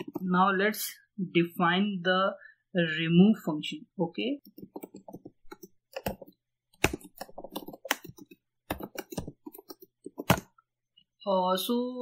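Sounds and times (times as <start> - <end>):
typing on computer keyboard: 0.0 - 0.3, 4.4 - 10.5.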